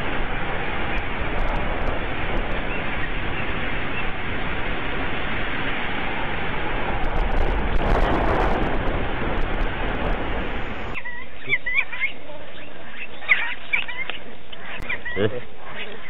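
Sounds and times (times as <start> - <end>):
steady rushing noise: 0.0 - 11.0
faint clicks: 0.9 - 2.7.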